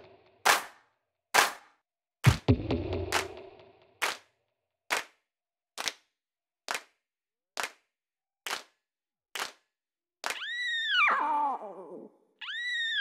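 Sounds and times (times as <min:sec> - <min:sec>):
slow single handclaps: 0:00.5 - 0:00.8, 0:01.4 - 0:01.7, 0:03.1 - 0:03.4, 0:04.0 - 0:04.3, 0:04.9 - 0:05.2, 0:05.8 - 0:06.0, 0:06.7 - 0:07.0, 0:07.6 - 0:07.9, 0:08.5 - 0:08.8, 0:09.4 - 0:10.4
high wailing cry: 0:10.4 - 0:13.0.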